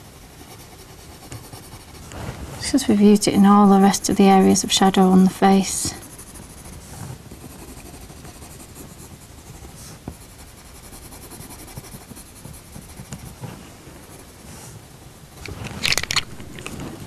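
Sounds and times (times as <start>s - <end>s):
pencil scratching on paper: 0.0s - 2.1s, 4.2s - 14.4s.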